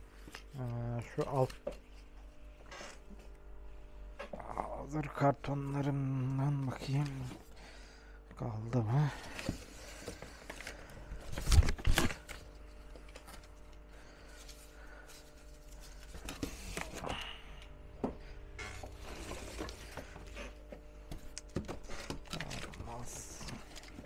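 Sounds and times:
cardboard rustling: 9.0 - 17.1, 18.6 - 24.0.

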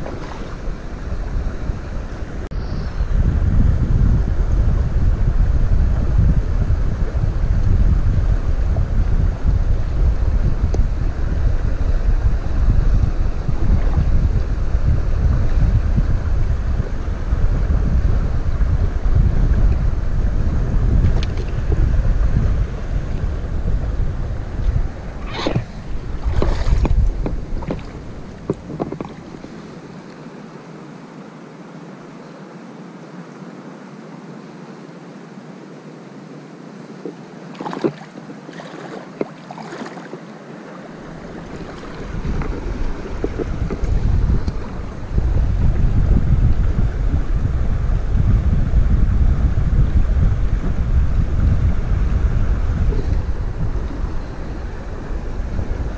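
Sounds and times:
wind buffeting microphone: 0.0 - 30.0, 40.8 - 55.9
river running over stones: 37.0 - 45.1.

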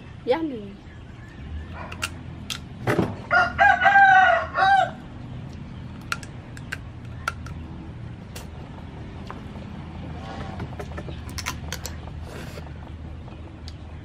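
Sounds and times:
rooster crowing: 3.3 - 5.1.

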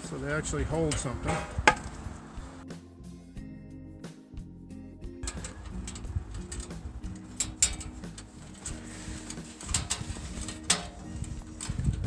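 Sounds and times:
hand tools clicking on steel: 5.2 - 12.0.

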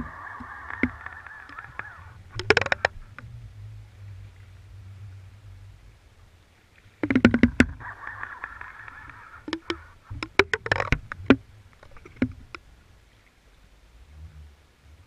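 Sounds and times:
squeaky rubbing: 0.0 - 3.2.

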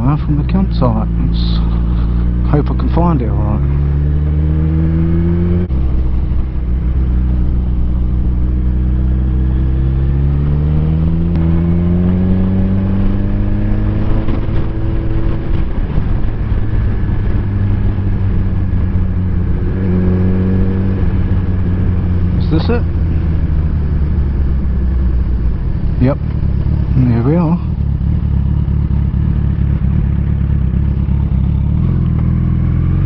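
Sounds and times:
motorcycle engine accelerating: 0.0 - 33.0.

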